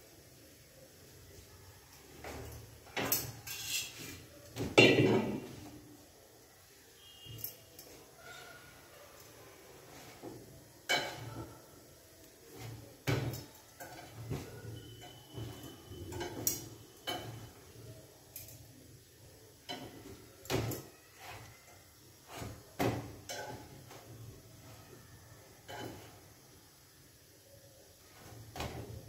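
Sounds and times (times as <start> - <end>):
metal tongs clicking on grate: 18.3 - 18.7.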